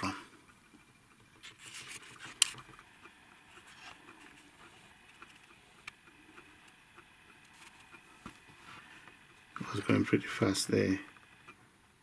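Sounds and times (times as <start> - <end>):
camera handling rustle: 1.4 - 2.8.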